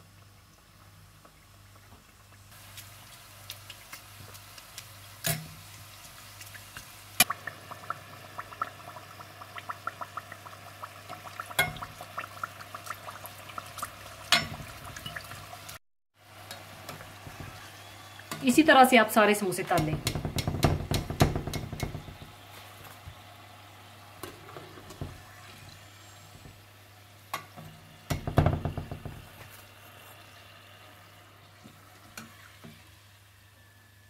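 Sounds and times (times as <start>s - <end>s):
food deep-frying in oil: 0.0s - 34.0s
sharp knocks: 19.8s - 22.2s.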